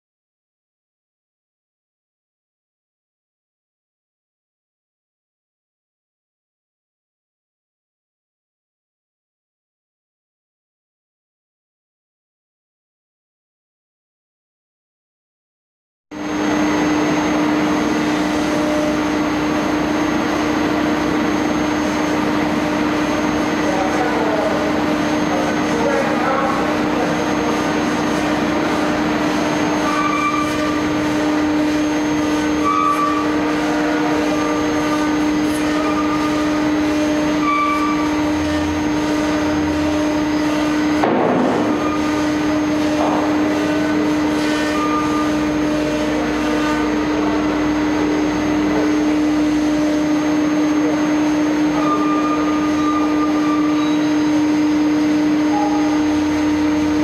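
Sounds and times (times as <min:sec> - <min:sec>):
dust extraction rushing: 0:16.2 - 0:57.0
router bit milling board: 0:16.2 - 0:57.0
router spindle whining: 0:16.2 - 0:57.0.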